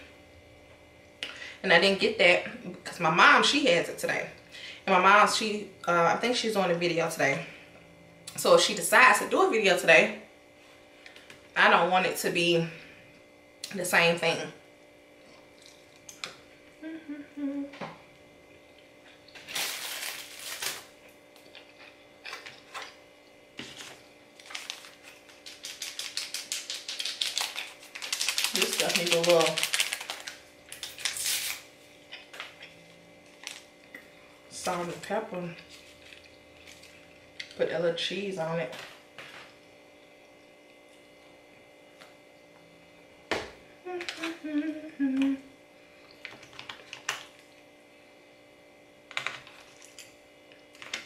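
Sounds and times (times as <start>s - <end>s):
faint steady hum: 0.0s - 51.0s
person humming: 16.8s - 17.9s, 43.8s - 45.6s.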